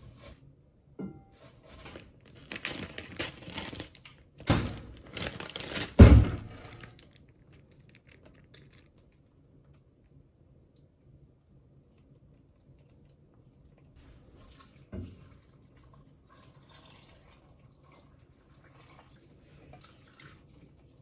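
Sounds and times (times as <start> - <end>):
plastic packaging crinkling: 1.6 - 9.3.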